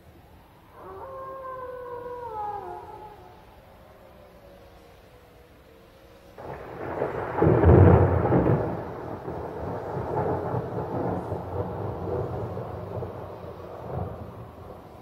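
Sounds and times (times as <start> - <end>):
thunder rumbling: 4.7 - 15.0.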